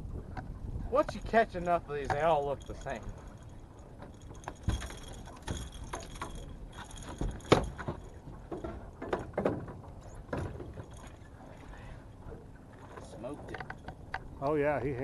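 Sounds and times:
fishing gear knocking and clinking: 1.0s - 11.2s, 13.4s - 15.0s.

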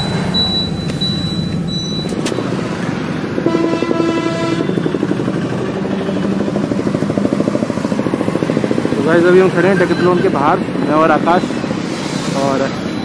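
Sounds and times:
vehicle engine rumbling: 0.0s - 13.0s
car horn: 3.4s - 5.0s.

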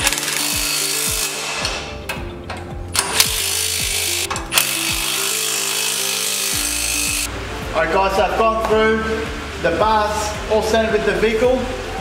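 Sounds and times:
cordless drill running: 0.0s - 1.6s, 3.0s - 7.3s
background music with steady beat: 0.0s - 12.0s.

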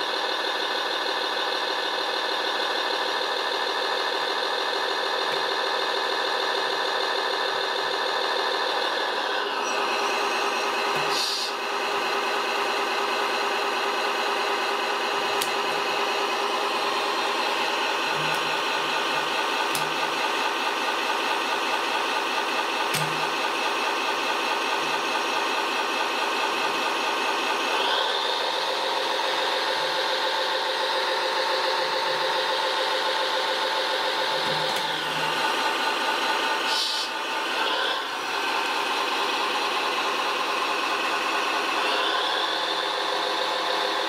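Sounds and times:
mechanical winch hum: 0.1s - 44.0s.

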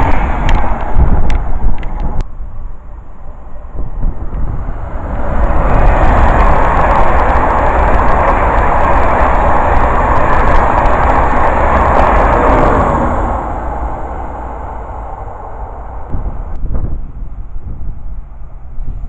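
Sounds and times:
rush of train passing: 0.0s - 19.0s
wheels clicking over rail joints: 4.0s - 13.1s.

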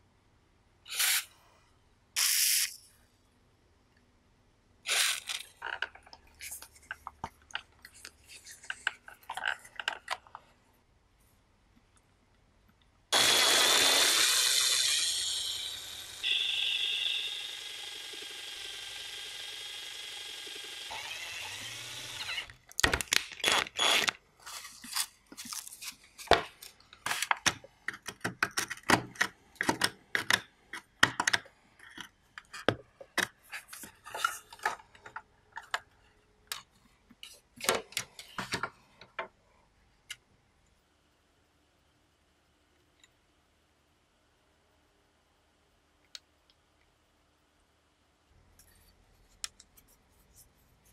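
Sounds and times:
power drill running: 0.9s - 1.2s, 4.9s - 5.4s, 13.2s - 22.6s, 23.4s - 24.1s.

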